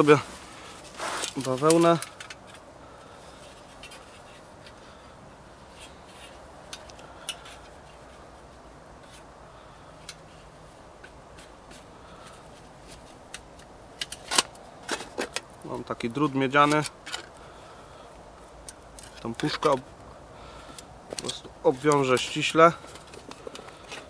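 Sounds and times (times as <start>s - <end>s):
rags rustling and rubbing: 0.0s - 2.6s.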